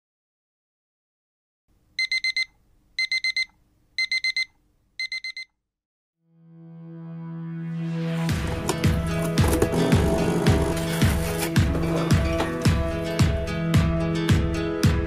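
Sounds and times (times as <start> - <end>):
alarm clock beeping: 2.0 - 5.5.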